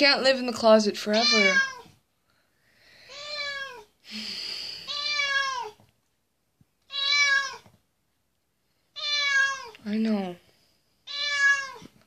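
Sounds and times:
cat meowing: 1.1s - 2.0s, 3.1s - 3.9s, 4.9s - 5.8s, 6.9s - 7.7s, 8.9s - 9.8s, 11.0s - 12.0s.

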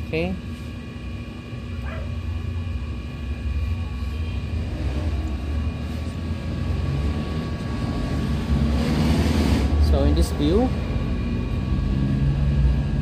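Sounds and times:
machine spinning wheel humming: 0.0s - 13.0s.

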